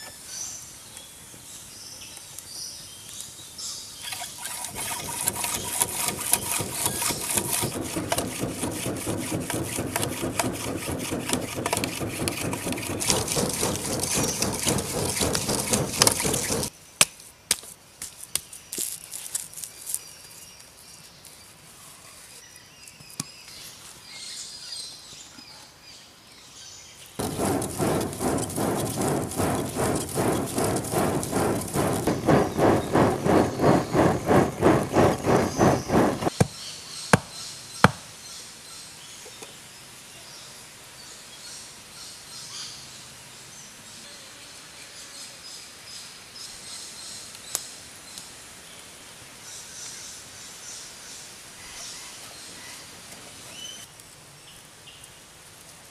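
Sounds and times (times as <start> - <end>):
fire crackling: 4.7 - 16.7, 27.2 - 36.3
sharp knocks: 4.7 - 16.7, 27.2 - 36.4
blower rushing whoosh: 6.4 - 16.7, 27.2 - 36.3.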